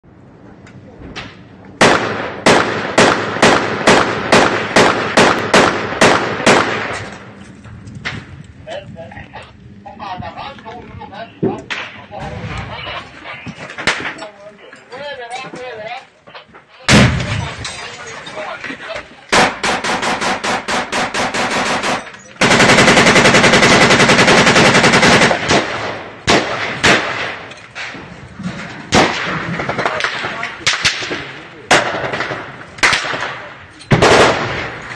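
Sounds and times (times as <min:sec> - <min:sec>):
automatic gunfire: 0:01.8 - 0:07.0, 0:19.4 - 0:27.4, 0:28.9 - 0:34.8
rifle single shots with echo: 0:01.8 - 0:07.3, 0:16.9 - 0:17.6, 0:19.3 - 0:27.5, 0:28.9 - 0:34.9.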